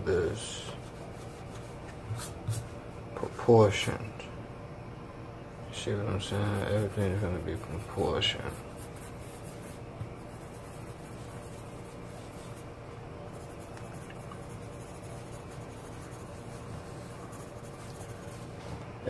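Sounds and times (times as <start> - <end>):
pencil scratching on paper: 6.2 - 12.7, 13.3 - 18.7.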